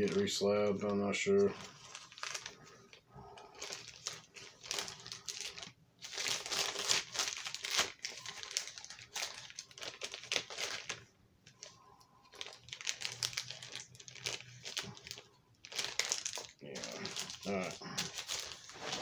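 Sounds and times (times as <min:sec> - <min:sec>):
plastic crinkling and rustling: 0:00.0 - 0:19.0.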